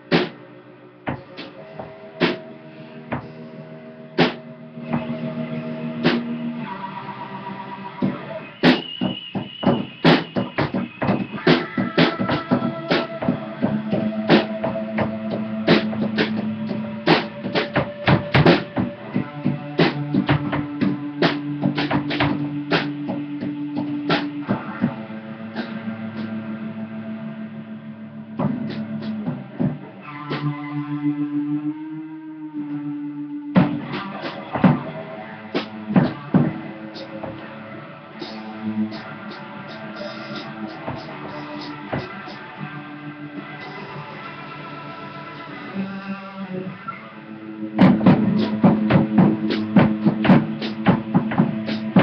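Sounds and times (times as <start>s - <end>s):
electric guitar: 0.0s - 52.0s
drum kit hits: 8.0s - 25.0s, 33.6s - 37.5s, 47.8s - 52.0s.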